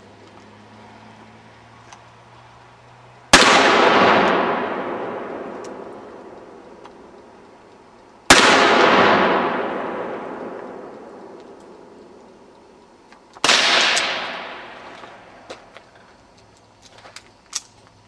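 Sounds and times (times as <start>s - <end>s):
handgun shots: 13.4s - 14.9s.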